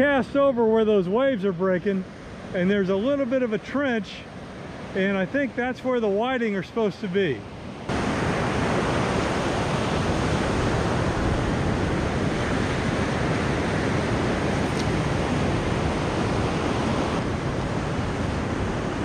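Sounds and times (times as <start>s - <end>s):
ocean surf breaking: 0.0s - 19.0s
wind on microphone: 7.6s - 19.0s.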